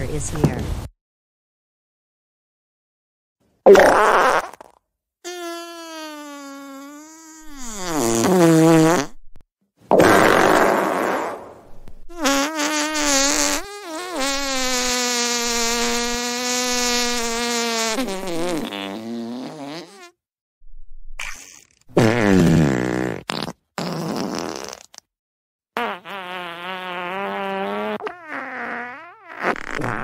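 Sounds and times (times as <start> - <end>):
cartoon fart sound effects: 3.7 - 9.2, 9.9 - 20.2, 21.2 - 25.0, 25.8 - 30.0.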